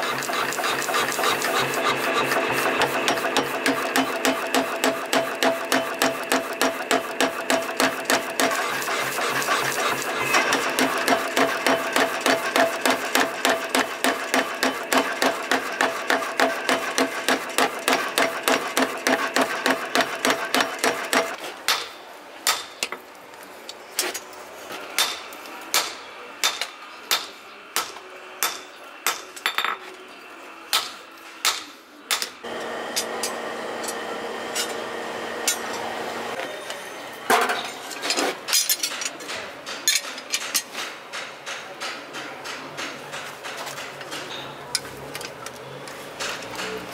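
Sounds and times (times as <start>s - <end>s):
power hammer pounding steel: 0.0s - 21.9s
hand hammer striking anvil: 1.8s - 8.6s
machinery hum: 32.4s - 38.0s.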